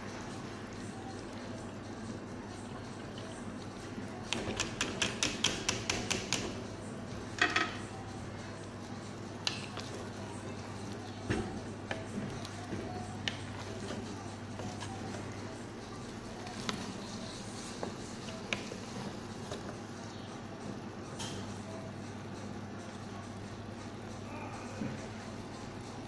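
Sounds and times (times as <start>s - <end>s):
utensils clicking on metal pot: 4.2s - 6.6s
steady low hum: 5.9s - 26.0s.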